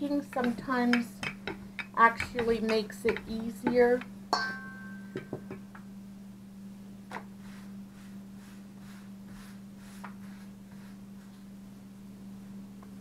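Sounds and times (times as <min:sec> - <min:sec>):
hands rubbing dough: 0:00.0 - 0:04.0, 0:07.2 - 0:11.6
steady low hum: 0:00.0 - 0:13.0
rolling pin knock: 0:00.3 - 0:05.7.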